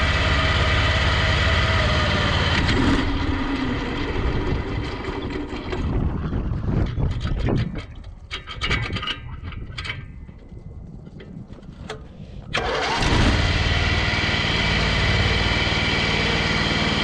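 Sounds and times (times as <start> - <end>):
small engine running: 0.0 - 6.7, 12.5 - 17.0.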